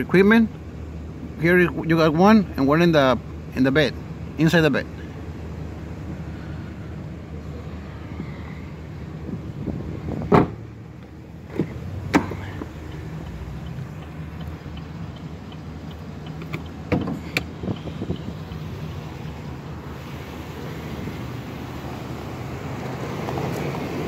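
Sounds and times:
knocks and thumps of car door: 10.2 - 10.6, 11.5 - 12.7, 16.4 - 17.5.

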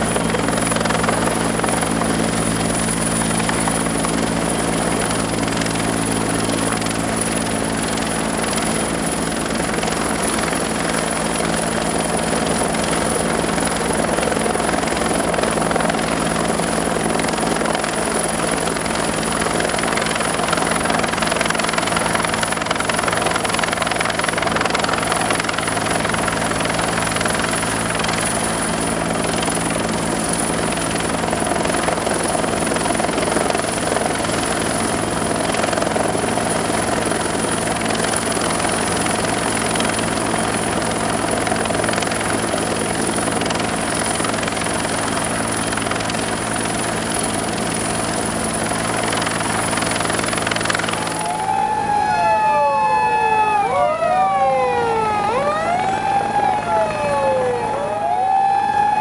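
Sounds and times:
helicopter rotor and turbine: 0.0 - 59.0
sirens wailing: 51.1 - 59.0.

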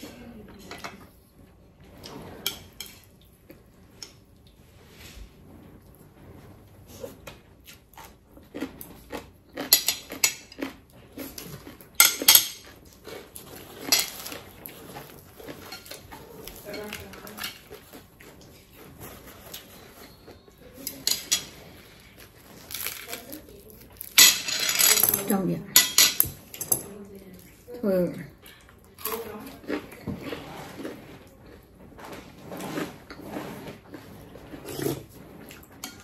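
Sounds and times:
crunching fried food: 7.6 - 24.4.

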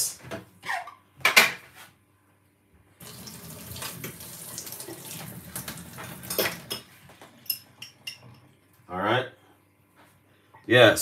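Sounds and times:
water running from tap: 3.0 - 8.6.

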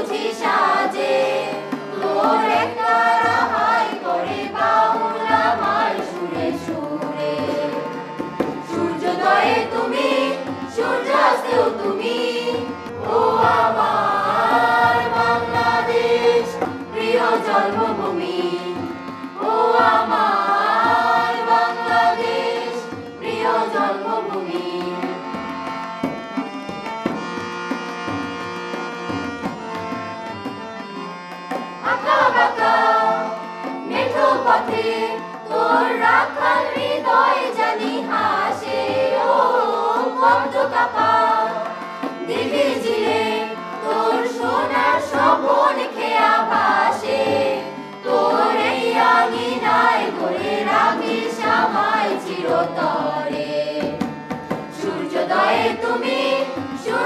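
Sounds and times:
group singing in chorus: 0.0 - 25.6, 31.8 - 57.0
harmonium: 0.0 - 57.0
tabla: 0.0 - 57.0.

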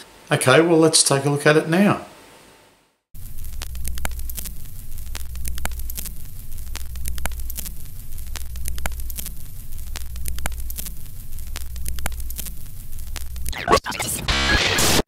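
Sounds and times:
steady low hum: 3.2 - 13.6
film crackle and pops: 3.2 - 15.0.

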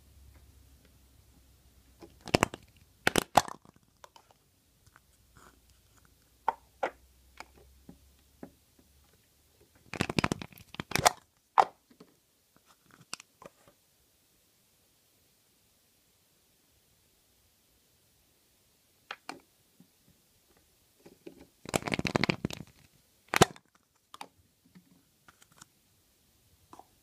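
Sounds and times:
plastic figures set on table: 0.0 - 14.2, 18.8 - 27.0
plastic shells pried open: 2.0 - 4.4, 9.9 - 11.8, 21.7 - 24.3.

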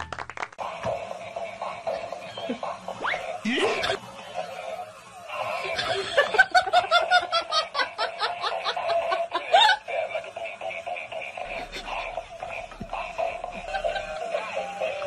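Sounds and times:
high-pitched laughter: 1.2 - 15.0
tinny electronic music: 10.2 - 15.0.

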